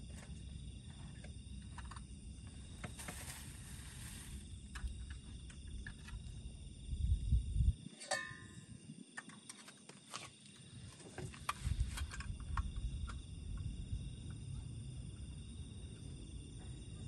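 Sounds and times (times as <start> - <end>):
insects calling: 0.0 - 17.0
metal canister clink: 7.9 - 8.7.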